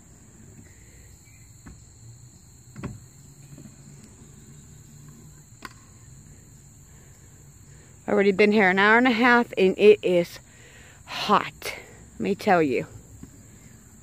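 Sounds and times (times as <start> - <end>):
crickets chirring: 0.0 - 14.0
faint knocks: 2.7 - 3.8.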